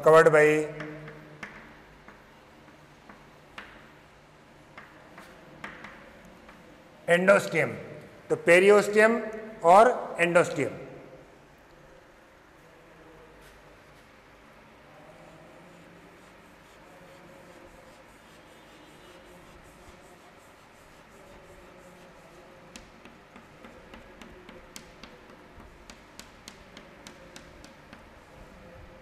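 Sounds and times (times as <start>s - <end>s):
sharp chalk taps: 0.7s - 6.8s, 20.8s - 28.3s
chalk scraping on chalkboard: 15.4s - 28.4s.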